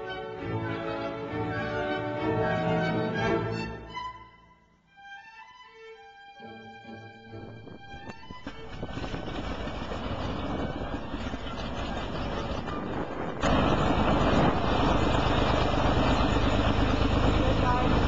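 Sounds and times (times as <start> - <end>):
propeller plane engine taxiing: 7.6 - 18.0.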